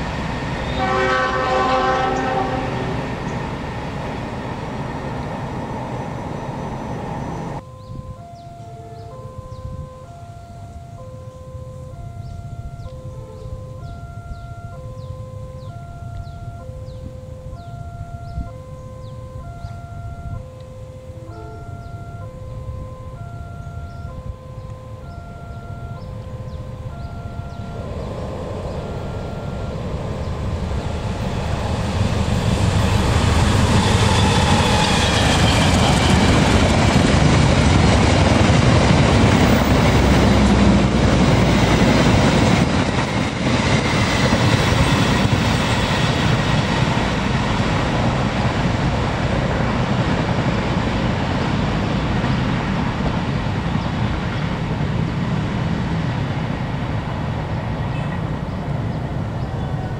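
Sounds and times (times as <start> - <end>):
train passing at speed: 0.0 - 59.9
electronic chime: 7.6 - 31.4.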